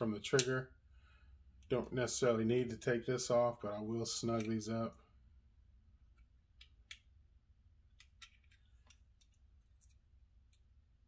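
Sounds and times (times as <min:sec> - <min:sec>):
parts being handled: 0:06.0 - 0:11.0.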